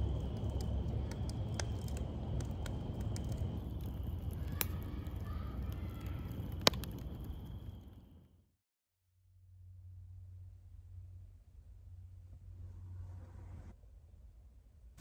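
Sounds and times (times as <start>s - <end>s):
campfire crackling and popping: 0.0s - 8.2s
low fire rumble: 0.0s - 8.4s, 10.2s - 13.8s.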